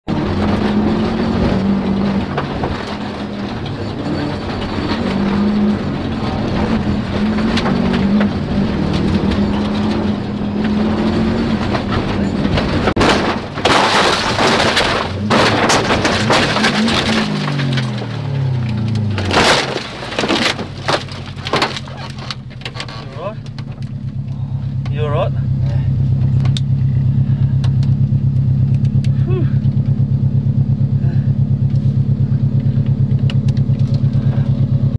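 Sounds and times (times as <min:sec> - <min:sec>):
car crashing and scraping: 0:00.1 - 0:27.7
heavy impact: 0:00.1 - 0:27.7
rally car engine revving: 0:00.1 - 0:34.9.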